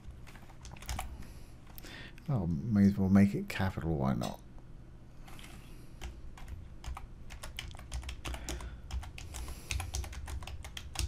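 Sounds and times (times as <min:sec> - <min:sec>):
computer keyboard typing: 0:00.3 - 0:01.1, 0:05.3 - 0:11.0.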